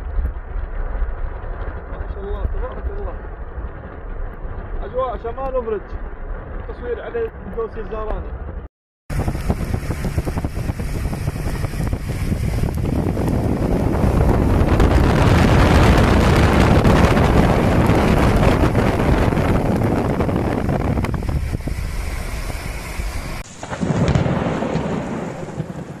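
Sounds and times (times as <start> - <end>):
steady rain: 0.0 - 6.8, 9.1 - 26.0
thunder rolling: 0.0 - 7.1, 8.3 - 26.0.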